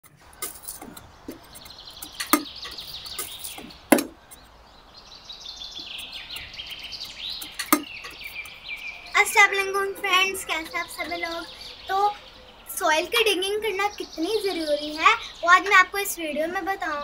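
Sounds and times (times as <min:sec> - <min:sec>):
small birds chirping: 0:00.0 - 0:17.0
hoe striking dry soil: 0:00.1 - 0:04.4.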